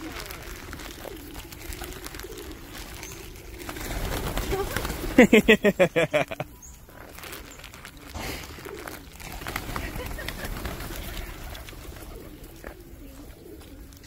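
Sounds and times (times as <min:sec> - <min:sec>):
pigeons cooing: 0:00.0 - 0:14.0
pigeons flapping wings: 0:00.0 - 0:14.0.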